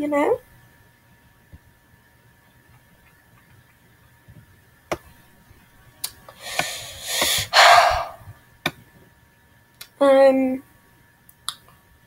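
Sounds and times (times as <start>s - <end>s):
person breathing hard: 6.4s - 8.3s.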